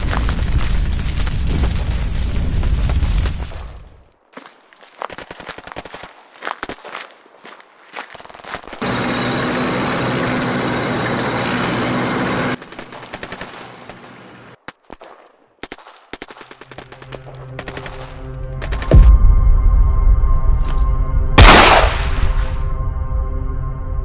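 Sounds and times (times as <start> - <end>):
music: 16.9 - 21.4, 22.1 - 24.0
machine-gun fire: 21.4 - 22.2.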